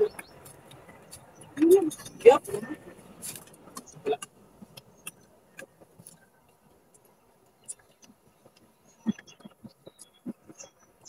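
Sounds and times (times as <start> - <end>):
faint bird chirps: 7.2 - 11.0.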